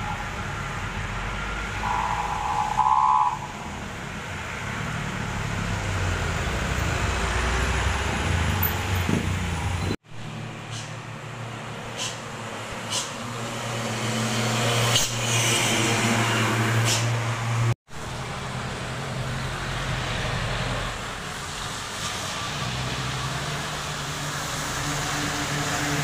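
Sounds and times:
car and truck engines: 0.0s - 26.0s
heavy truck engine drone: 0.0s - 26.0s
tyres hissing on wet road: 11.7s - 26.0s.

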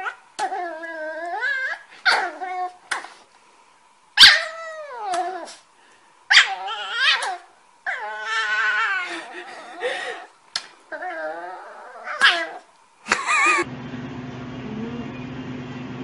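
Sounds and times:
dog whining: 0.0s - 3.1s, 4.2s - 5.6s, 6.3s - 10.3s, 10.9s - 12.7s.

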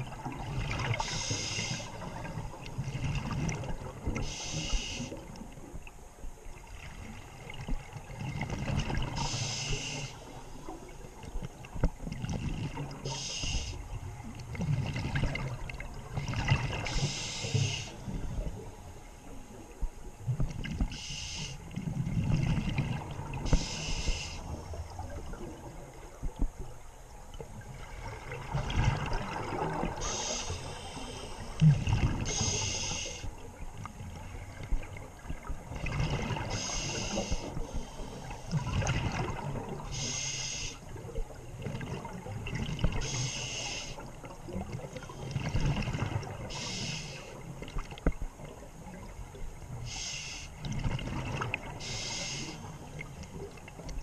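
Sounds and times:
hissing regulator inhale: 1.0s - 2.3s, 4.2s - 5.2s, 9.2s - 10.7s, 13.0s - 13.9s, 16.8s - 18.2s, 20.9s - 21.7s, 23.4s - 24.6s, 30.0s - 31.7s, 32.3s - 33.4s, 36.5s - 38.6s, 39.9s - 40.9s, 43.0s - 44.1s, 46.5s - 47.4s, 49.8s - 50.6s, 51.8s - 52.8s
gurgle of exhaled bubbles: 14.2s - 18.6s, 21.8s - 26.5s, 27.6s - 30.8s, 31.4s - 32.6s, 34.5s - 37.7s, 38.5s - 40.0s, 40.9s - 43.2s, 44.4s - 49.2s, 50.6s - 54.0s.

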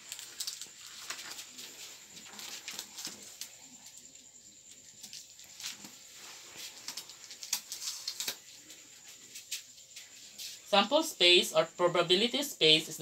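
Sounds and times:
paper rustling and crinkling: 0.0s - 4.2s, 5.0s - 10.7s.

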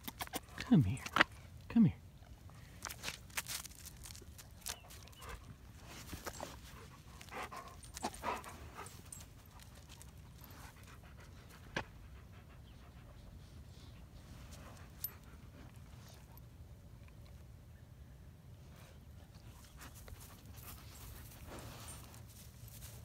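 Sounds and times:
dog panting: 4.8s - 16.1s.

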